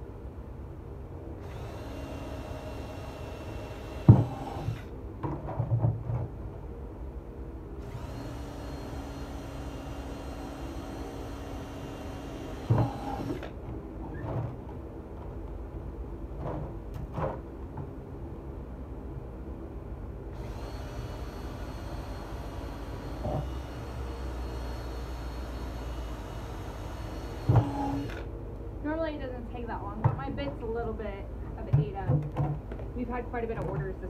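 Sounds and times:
cordless drill boring plastic: 0:07.8 - 0:13.5, 0:20.4 - 0:28.3
hollow knocks on plastic barrel: 0:31.7 - 0:32.9.

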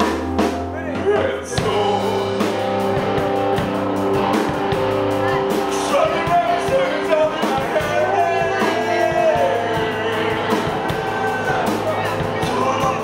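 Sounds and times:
drum kit hits: 0:00.0 - 0:13.0
live rock band: 0:00.0 - 0:13.0.

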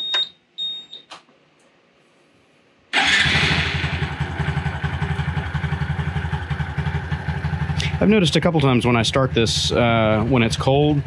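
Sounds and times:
electric starter: 0:02.9 - 0:04.2
motorcycle engine idling: 0:03.0 - 0:11.0.

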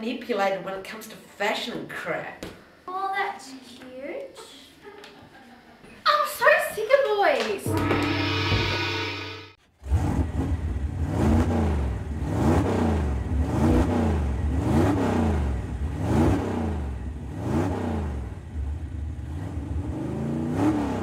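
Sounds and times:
engine revving: 0:09.8 - 0:21.0.

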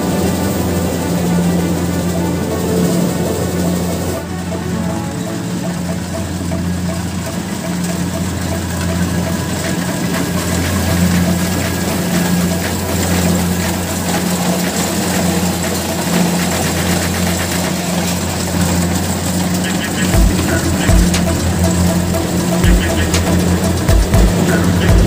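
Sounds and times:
combine harvester diesel engine drone: 0:00.0 - 0:25.0
threshing machinery clatter: 0:05.8 - 0:25.0.

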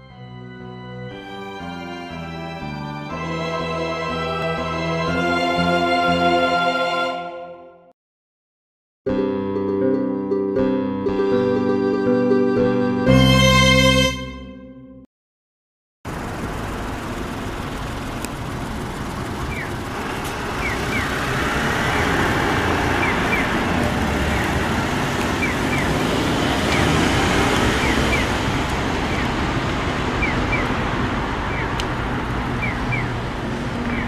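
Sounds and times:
road traffic passing: 0:00.2 - 0:07.3, 0:16.1 - 0:34.0.

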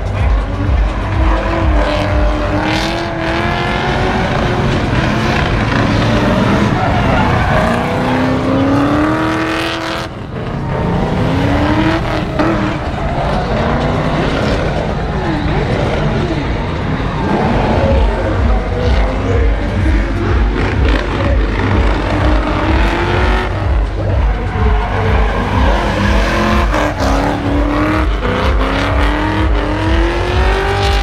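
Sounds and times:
car engine revving hard: 0:00.0 - 0:31.0
tyres squealing: 0:03.6 - 0:09.6, 0:11.4 - 0:29.8.

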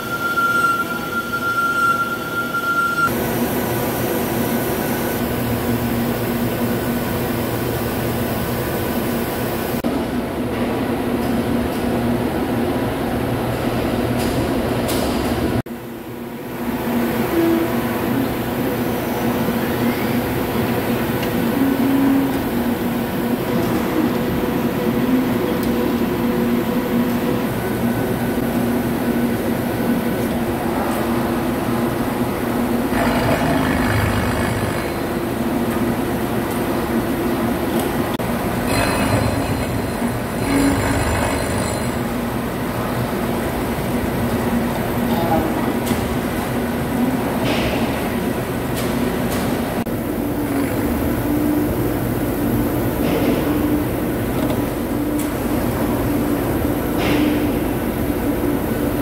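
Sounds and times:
boring machine droning: 0:16.3 - 0:43.7.

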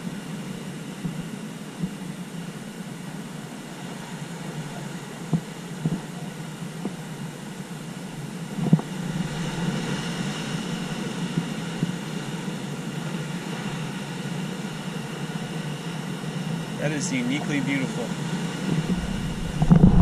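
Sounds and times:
waves rushing on rocks: 0:08.0 - 0:20.0
wave crashing onto rocks: 0:18.7 - 0:20.0.

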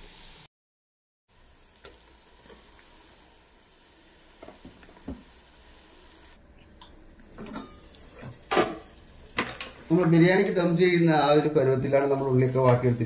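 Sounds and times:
onions sizzling in hot oil: 0:00.0 - 0:00.5, 0:01.3 - 0:06.4, 0:07.3 - 0:13.0.

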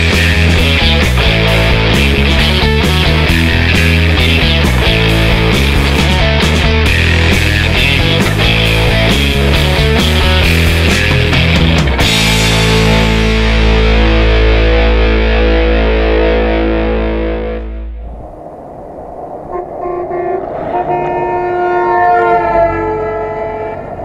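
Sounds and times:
vehicles driving by: 0:00.0 - 0:14.0, 0:17.6 - 0:24.0
distorted rock music: 0:00.0 - 0:18.0
vehicle horns: 0:19.5 - 0:24.0.

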